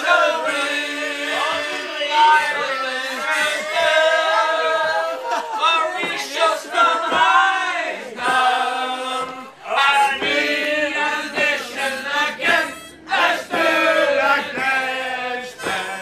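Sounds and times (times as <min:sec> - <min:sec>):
group singing in chorus: 0:00.0 - 0:16.0
harmonica playing: 0:12.4 - 0:14.4.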